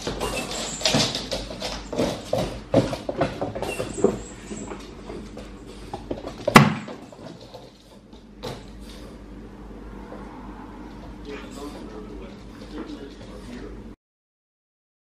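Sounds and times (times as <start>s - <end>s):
paws and toy clicking on floor: 0.0s - 9.0s.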